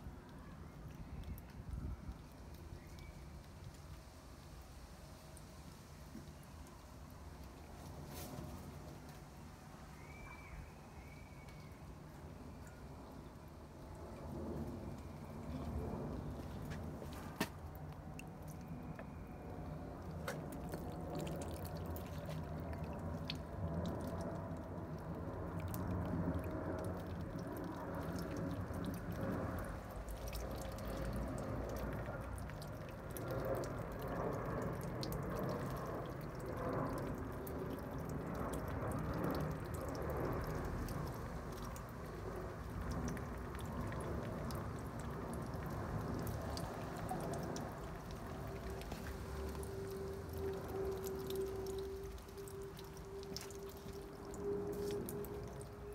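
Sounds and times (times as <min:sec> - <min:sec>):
water trickling onto wooden slats: 0:00.0 - 0:10.4, 0:11.1 - 0:55.9
water pouring into pot: 0:20.1 - 0:55.9.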